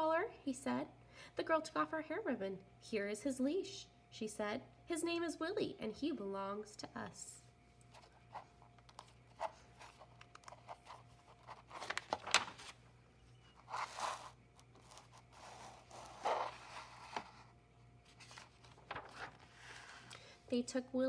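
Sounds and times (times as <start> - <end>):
book pages turning: 7.9 - 20.3.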